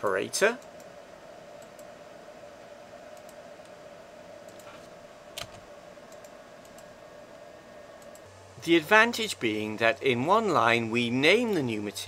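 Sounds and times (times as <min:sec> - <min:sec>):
steady background hum: 0:00.0 - 0:12.0
keyboard and mouse clicks: 0:04.4 - 0:06.9.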